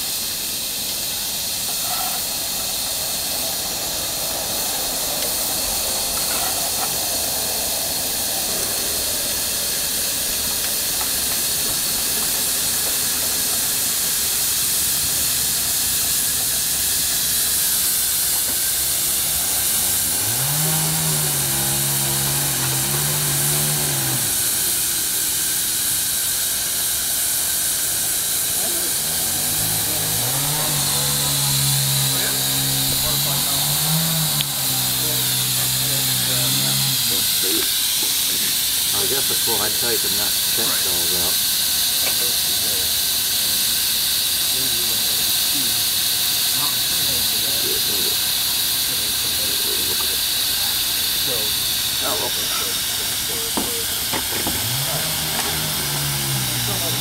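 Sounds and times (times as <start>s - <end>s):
steam hissing: 0.0s - 57.0s
low droning tone: 18.4s - 26.8s, 28.0s - 39.8s, 51.2s - 57.0s.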